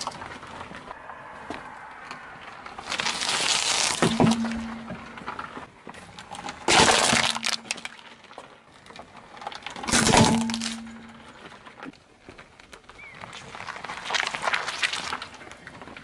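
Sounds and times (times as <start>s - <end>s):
car tyre crushing objects: 0.0s - 16.0s
plastic toy cracking and shattering: 2.8s - 4.9s, 6.4s - 8.1s, 9.4s - 11.2s.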